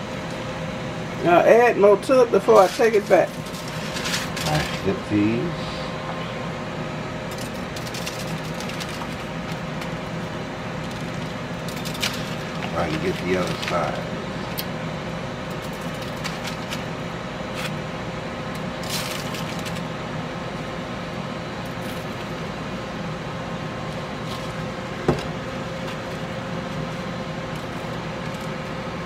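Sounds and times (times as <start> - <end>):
machine hum: 0.0 - 29.0
hands rustling foil: 2.4 - 5.0, 7.3 - 10.0, 10.8 - 14.1, 15.5 - 16.9, 18.8 - 19.9.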